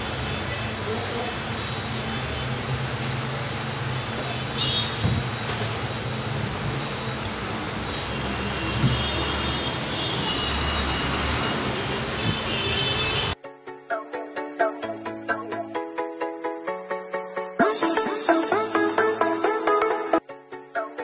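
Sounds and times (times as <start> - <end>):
rumble of passing vehicles: 0.0 - 13.4
high-pitched squeals or horn tones: 1.6 - 13.4.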